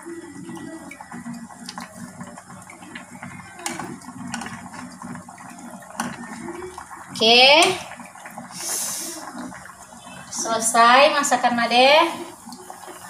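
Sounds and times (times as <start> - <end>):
liquid sloshing: 0.0 - 13.0
spoon stirring stew in pot: 1.0 - 8.3.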